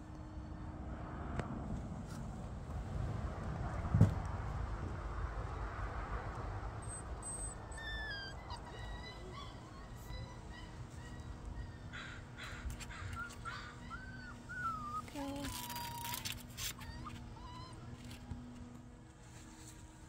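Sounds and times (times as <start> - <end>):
puppies whimpering and whining: 6.8 - 18.6.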